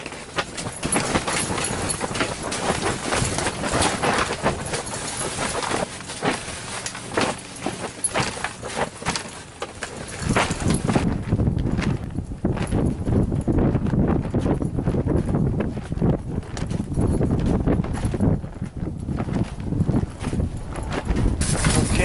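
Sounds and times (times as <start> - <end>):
footsteps crunching on snow: 0.0 - 22.0
wind buffeting microphone: 9.8 - 22.0.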